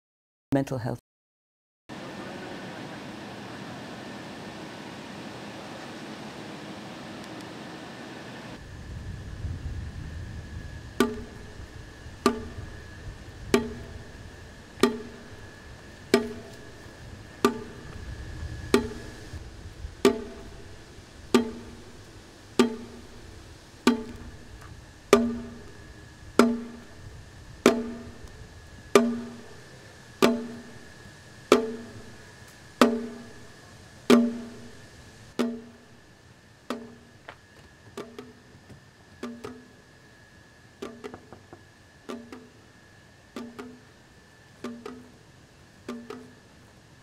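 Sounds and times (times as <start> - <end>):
hollow percussion strikes: 11.0 - 19.4, 20.0 - 36.0, 36.7 - 37.1, 38.0 - 38.5, 39.2 - 39.9, 40.8 - 42.6, 43.4 - 43.9, 44.6 - 45.2, 45.8 - 46.4.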